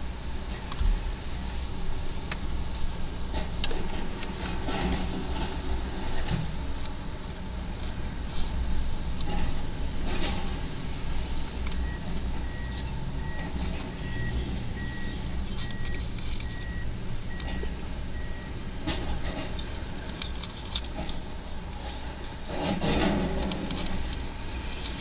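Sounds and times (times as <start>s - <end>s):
diesel machinery rumbling: 0.0s - 25.0s
backup alarm beeping: 11.8s - 18.6s.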